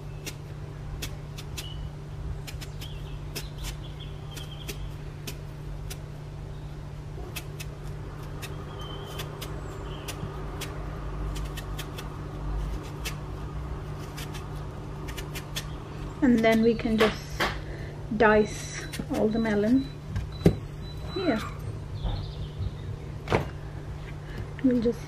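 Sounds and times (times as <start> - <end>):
knife cutting melon rind: 0.0 - 6.1, 7.2 - 17.6, 18.8 - 19.8
steady low hum: 0.0 - 25.0.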